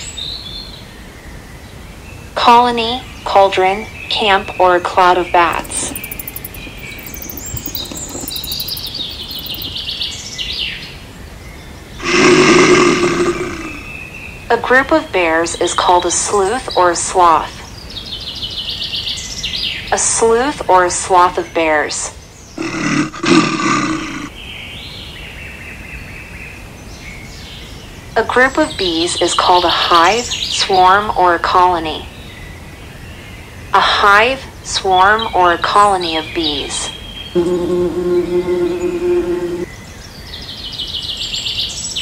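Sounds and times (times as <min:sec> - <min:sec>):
bats squeaking: 0:05.2 - 0:09.8
high-pitched hum: 0:05.4 - 0:09.7, 0:37.4 - 0:39.7
bear roaring: 0:12.0 - 0:14.0, 0:22.6 - 0:24.3.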